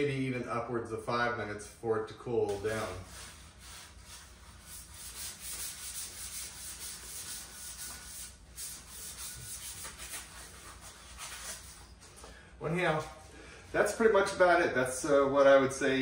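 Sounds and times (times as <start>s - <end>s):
wire brush scrubbing pipe: 2.7s - 11.8s.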